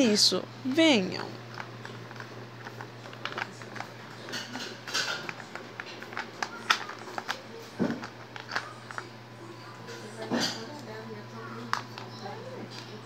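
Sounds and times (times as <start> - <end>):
plastic toys clicking and tapping: 1.5 - 9.1.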